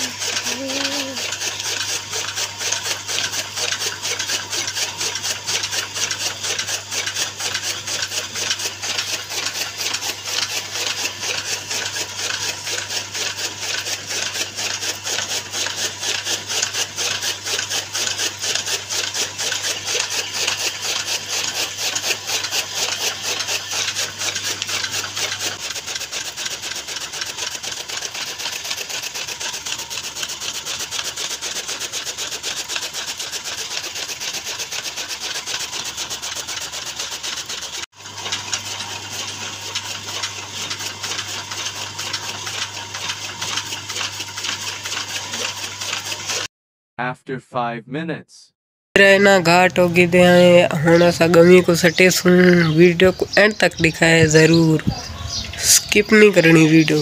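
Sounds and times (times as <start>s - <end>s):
chaff cutter blades chopping: 0.0s - 46.5s, 49.0s - 57.0s
electric motor hum: 0.0s - 46.5s, 49.0s - 57.0s.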